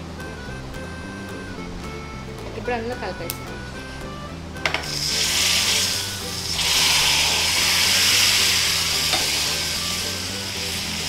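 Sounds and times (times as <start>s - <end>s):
hot oil sizzling in liquid: 4.6s - 11.0s.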